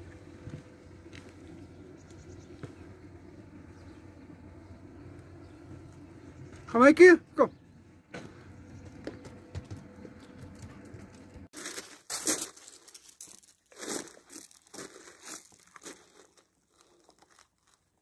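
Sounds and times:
footsteps on gravel: 8.1 - 17.9.

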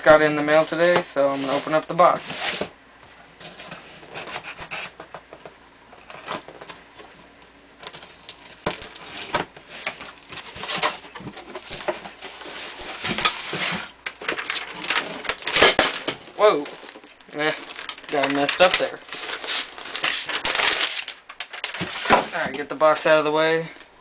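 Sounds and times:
item sliding against cardboard: 1.2 - 2.7, 3.4 - 5.1, 9.0 - 13.9, 21.8 - 22.6
cardboard flaps rubbing: 17.7 - 22.7.

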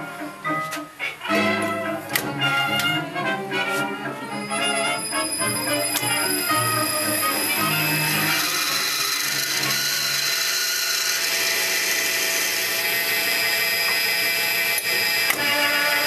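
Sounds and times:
machine running hum: 0.0 - 16.0
lathe cutting metal: 3.6 - 16.0.

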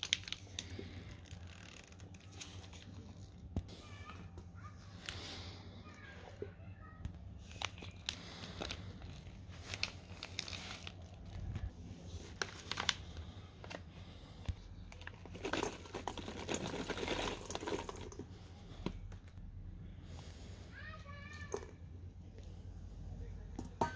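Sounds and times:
plastic bags crinkling: 0.0 - 3.5, 7.4 - 18.4.

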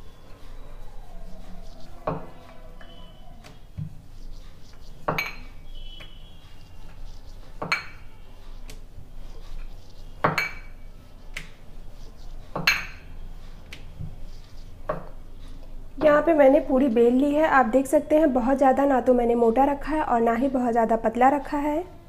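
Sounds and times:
rolling pin rolling dough: 0.0 - 17.4.

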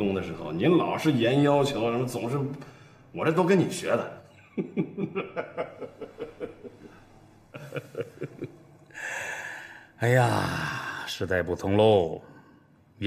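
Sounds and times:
man chuckling: 4.4 - 9.1
breathy exhale: 8.9 - 11.1.

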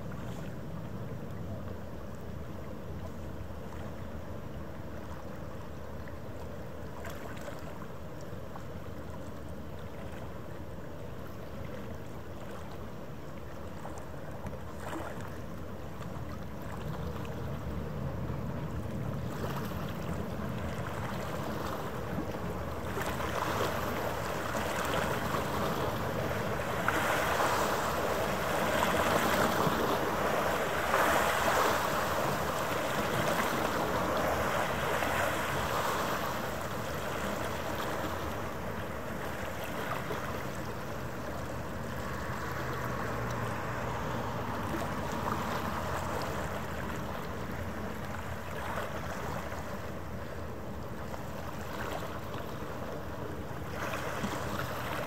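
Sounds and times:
faint steady hum: 0.0 - 55.0
waves washing against shore: 13.7 - 55.0.

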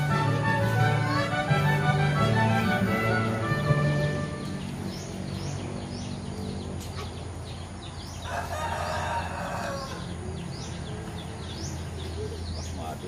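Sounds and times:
small birds chirping: 0.0 - 13.0
rooster crowing: 8.2 - 10.2.

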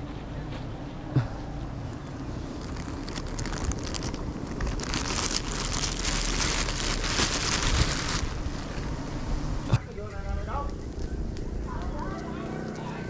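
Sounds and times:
rustling and crinkling: 1.8 - 9.1
wind rumble on microphone: 2.6 - 12.0.

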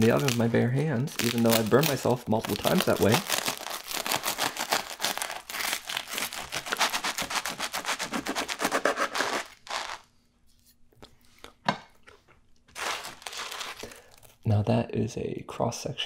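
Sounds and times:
knife sawing crunchy bread crust: 3.2 - 10.0.

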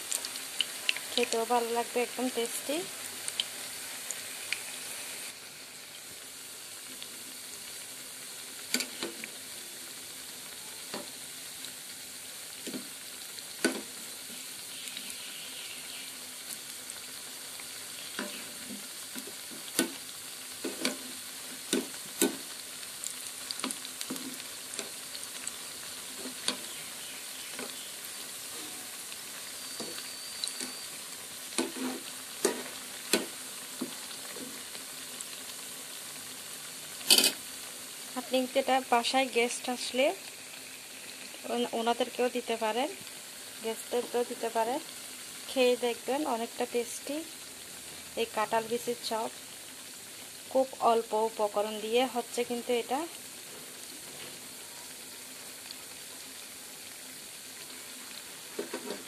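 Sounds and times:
food sizzling in hot oil: 0.0 - 59.0.

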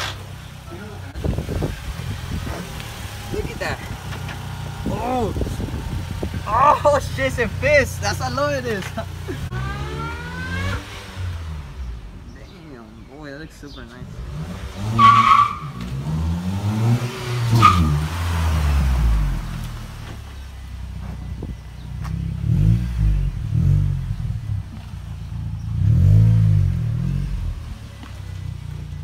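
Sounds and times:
car engine revving past: 9.4 - 12.1.

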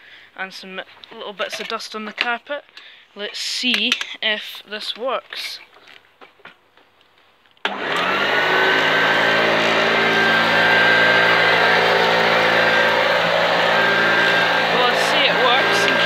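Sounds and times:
vacuum cleaner motor whine: 7.7 - 16.0.

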